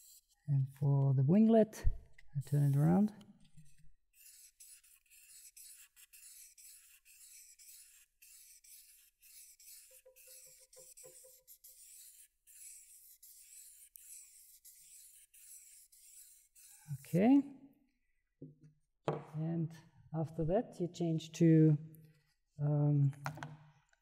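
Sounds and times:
sandpaper rasping on wood: 0.0 - 0.4, 4.2 - 17.2.

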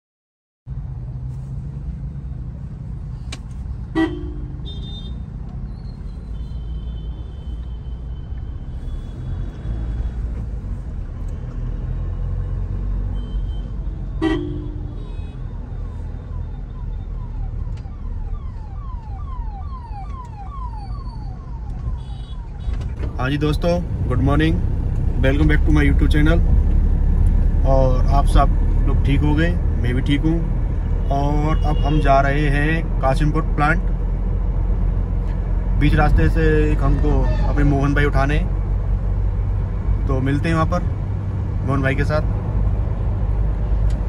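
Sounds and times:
car cabin engine and road rumble: 0.7 - 6.4, 17.6 - 30.8
car horn toots: 3.9 - 5.2, 13.2 - 15.4
siren sweeping in pitch: 15.7 - 22.8.

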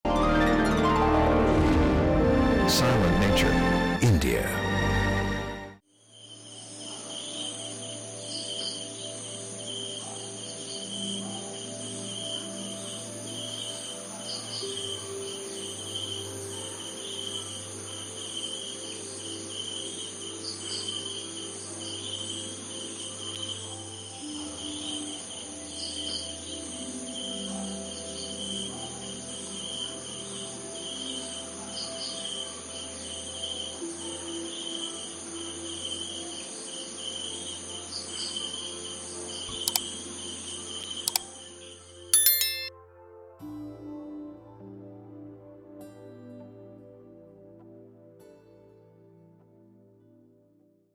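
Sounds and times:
high insect drone: 5.9 - 41.7
crickets chirping: 5.9 - 41.8.

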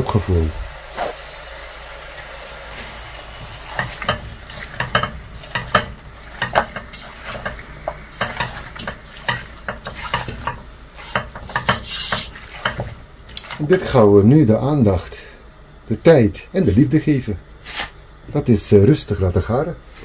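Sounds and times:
oil sizzling: 0.0 - 13.7
spatula scraping a pot: 3.7 - 13.7.

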